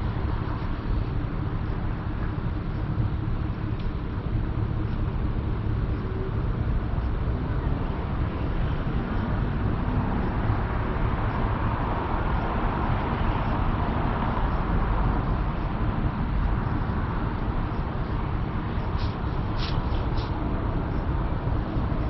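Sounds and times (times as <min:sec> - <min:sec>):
car engine and road rumble: 0:00.0 - 0:22.0
hiss: 0:18.9 - 0:20.4.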